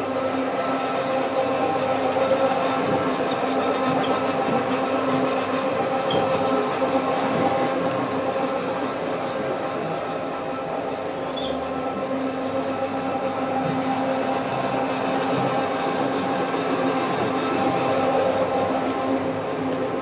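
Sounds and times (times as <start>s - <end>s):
floor scrubber motor drone: 0.0s - 20.0s.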